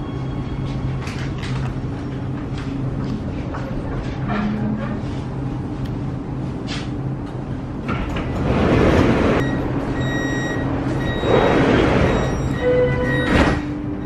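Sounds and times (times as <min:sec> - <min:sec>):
train low hum: 0:00.0 - 0:14.0.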